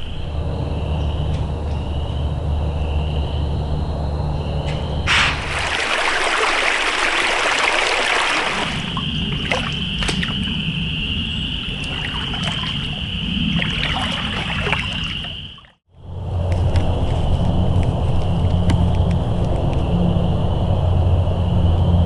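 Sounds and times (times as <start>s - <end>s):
creek rushing: 5.1s - 10.4s, 11.7s - 15.4s
wading through water: 5.1s - 15.8s.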